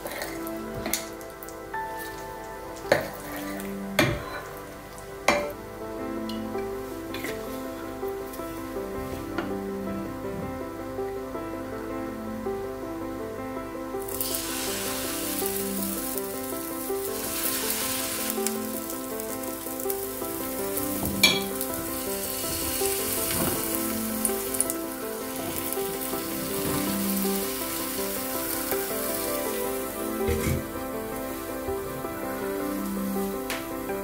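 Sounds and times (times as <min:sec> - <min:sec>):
background music: 0:00.0 - 0:34.0
batter sizzling in hot oil: 0:14.0 - 0:33.9.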